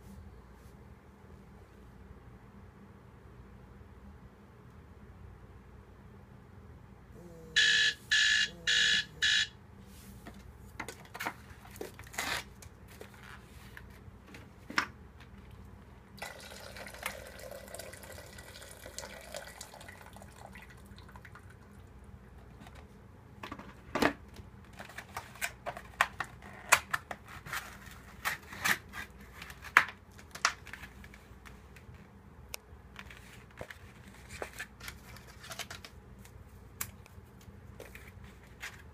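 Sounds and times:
hot water pouring into kettle: 0:16.2 - 0:21.5.

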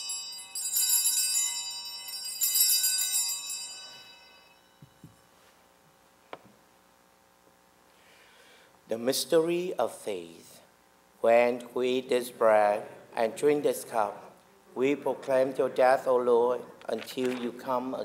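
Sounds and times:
altar bells ringing: 0:00.0 - 0:05.3.

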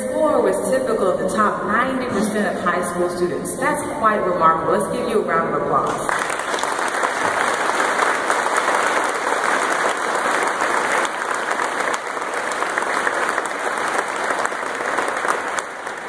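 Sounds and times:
large audience applauding: 0:06.1 - 0:16.0.

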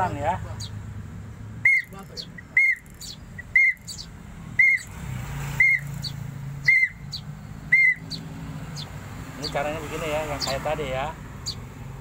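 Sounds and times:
whistled call note: 0:01.6 - 0:02.0, 0:02.6 - 0:04.0, 0:04.6 - 0:04.9, 0:05.6 - 0:05.9, 0:06.6 - 0:07.0, 0:07.7 - 0:08.0.

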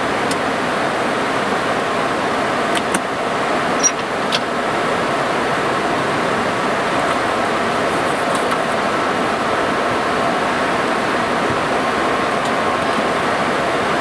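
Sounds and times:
airliner cockpit rushing noise: 0:02.4 - 0:14.0.

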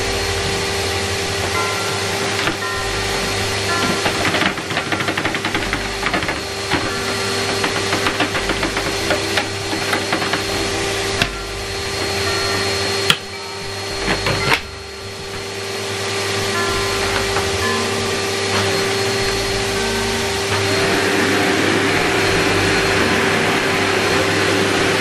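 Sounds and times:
vacuum cleaner running on carpet: 0:00.0 - 0:25.0.

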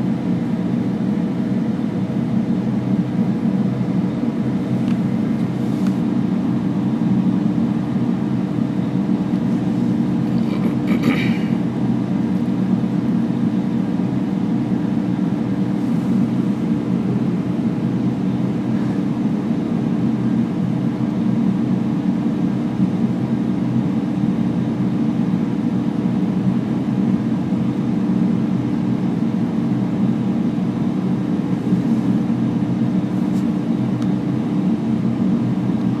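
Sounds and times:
low hum of equipment: 0:00.0 - 0:36.0.

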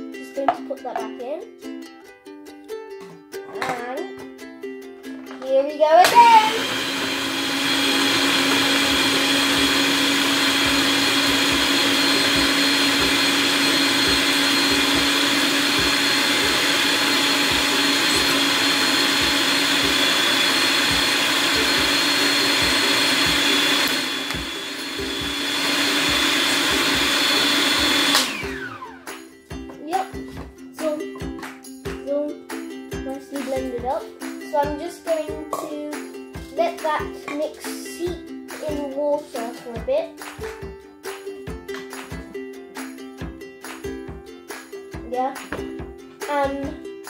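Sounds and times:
food processor motor running: 0:06.0 - 0:29.2.

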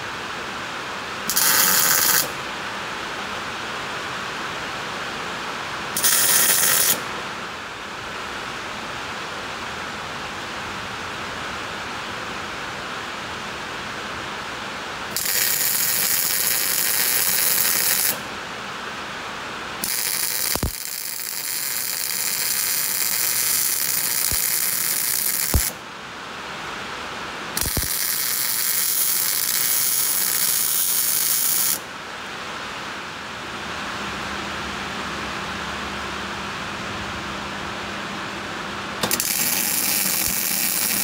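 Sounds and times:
welder crackling: 0:01.3 - 0:02.4, 0:06.0 - 0:07.1, 0:15.1 - 0:18.3, 0:19.8 - 0:25.8, 0:27.6 - 0:31.9, 0:39.0 - 0:41.0.

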